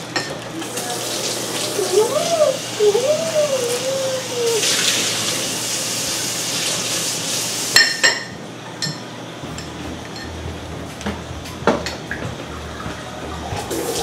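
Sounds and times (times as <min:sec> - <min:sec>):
dishware clinking: 0:07.8 - 0:10.4.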